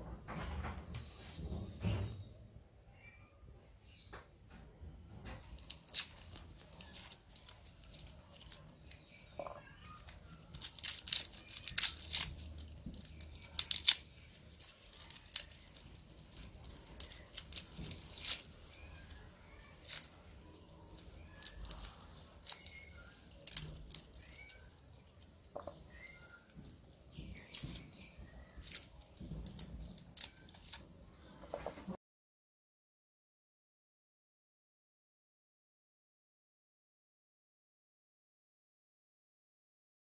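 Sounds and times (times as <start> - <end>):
garlic skins crackling: 5.4 - 31.6.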